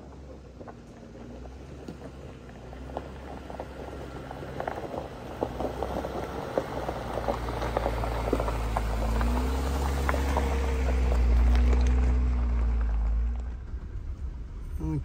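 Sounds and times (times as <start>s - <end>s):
engine humming: 0.0s - 15.0s
tyres crackling over gravel: 0.0s - 15.0s.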